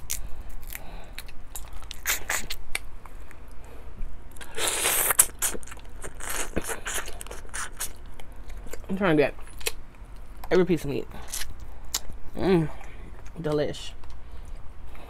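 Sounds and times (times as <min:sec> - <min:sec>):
mouth sucking and biting: 0:01.6 - 0:02.8, 0:04.4 - 0:08.0.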